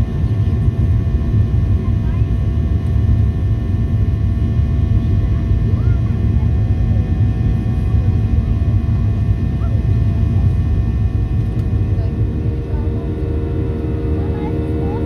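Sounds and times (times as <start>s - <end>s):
airplane engines and airflow rumble: 0.0s - 15.0s
faint whining tones: 11.5s - 15.0s.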